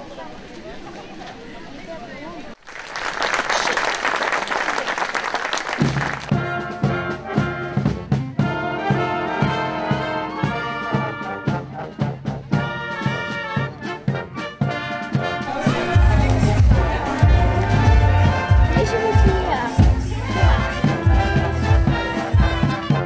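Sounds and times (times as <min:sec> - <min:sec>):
applause: 0:02.6 - 0:06.3, 0:15.8 - 0:19.3
wind band playing: 0:05.8 - 0:23.0.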